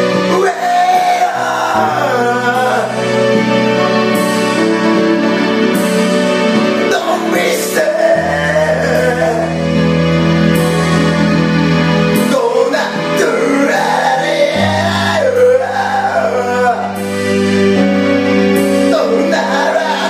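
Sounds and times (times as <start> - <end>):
man singing into microphone: 0.0 - 3.6, 6.7 - 10.0, 12.2 - 17.2, 18.6 - 20.0
instrumental backing track: 0.0 - 20.0.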